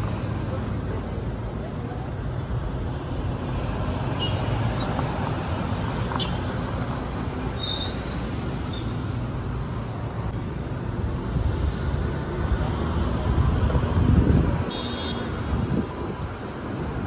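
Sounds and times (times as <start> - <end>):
street traffic rumble: 0.0 - 17.0
wind buffeting microphone: 13.2 - 14.7, 15.4 - 17.0.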